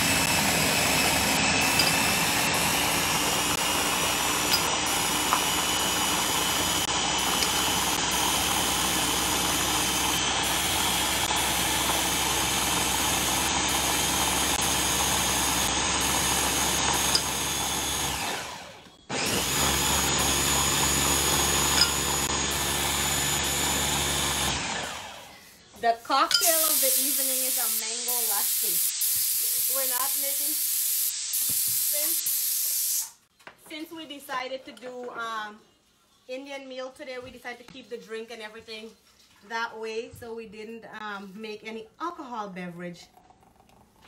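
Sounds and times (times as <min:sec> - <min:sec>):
blender motor running: 0:00.0 - 0:25.4.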